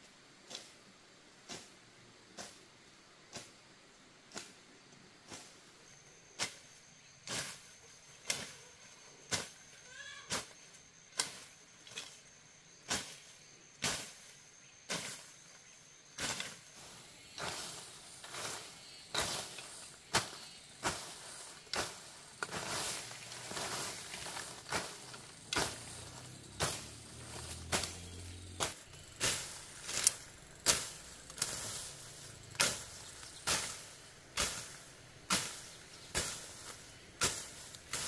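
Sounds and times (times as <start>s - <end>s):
blade chopping grass and stems: 8.2s - 8.6s, 10.3s - 12.2s, 12.8s - 14.3s, 16.1s - 38.0s
falling foliage rustling: 16.2s - 38.0s.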